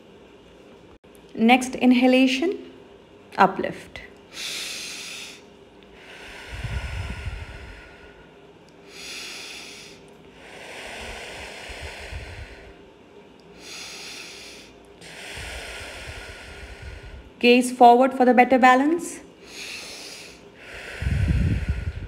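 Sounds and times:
woman breathing slowly: 4.3s - 17.4s, 19.3s - 22.0s.

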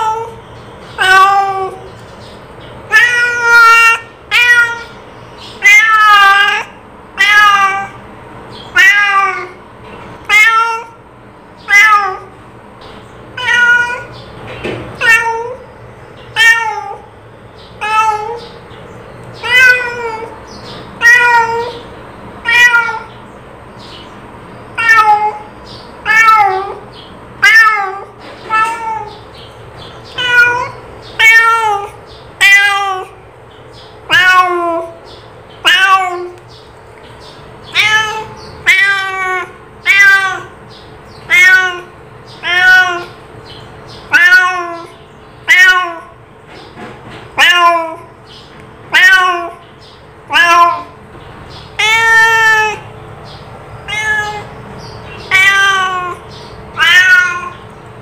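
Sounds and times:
cat meowing: 0.0s - 1.9s, 2.9s - 8.0s, 8.7s - 9.6s, 10.2s - 11.0s, 11.6s - 12.4s, 13.4s - 14.2s, 15.0s - 15.7s, 16.3s - 17.1s, 17.8s - 18.6s, 19.4s - 23.2s, 24.7s - 29.3s, 30.0s - 33.2s, 34.1s - 35.0s, 35.6s - 36.4s, 37.6s - 43.2s, 44.0s - 46.2s, 47.3s - 48.2s, 48.9s - 49.6s, 50.2s - 51.0s, 51.6s - 53.0s, 53.8s - 57.7s.

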